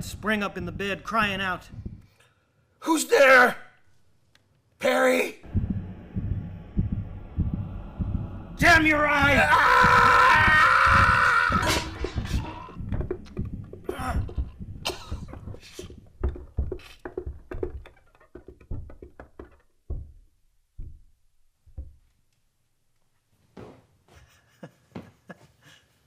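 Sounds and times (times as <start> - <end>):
rapid thumps and knocks: 0.0 - 2.1, 5.4 - 22.2.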